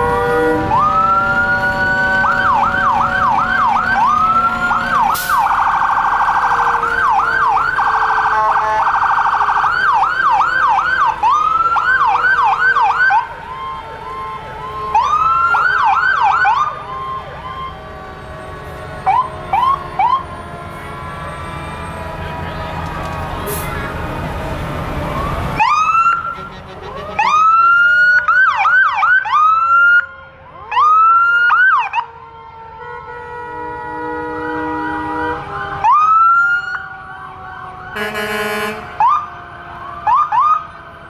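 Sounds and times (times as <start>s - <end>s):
fire truck siren wailing: 0.0s - 41.0s
fainter second siren: 25.0s - 41.0s.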